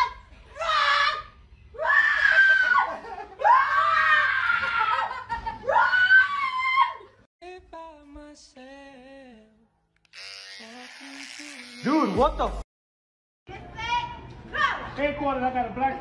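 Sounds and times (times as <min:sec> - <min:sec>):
woman screaming: 0:00.6 - 0:05.1, 0:05.7 - 0:07.1.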